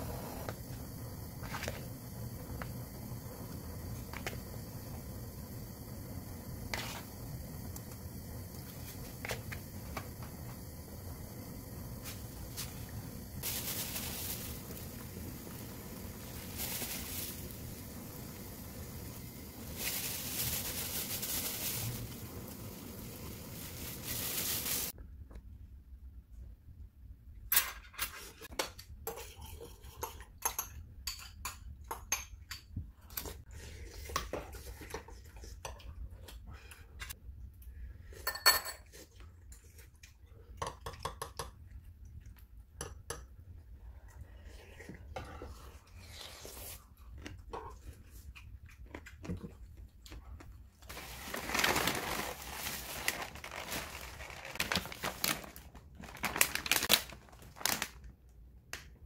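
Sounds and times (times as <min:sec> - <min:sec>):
plastic bag rustling: 0:13.4 - 0:25.0, 0:50.8 - 0:58.1.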